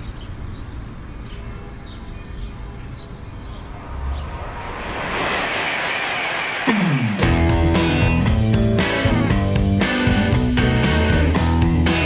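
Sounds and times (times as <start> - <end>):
birds chirping: 0.0 - 4.6
high-speed train passing: 3.2 - 8.5
low rumble: 3.4 - 8.8.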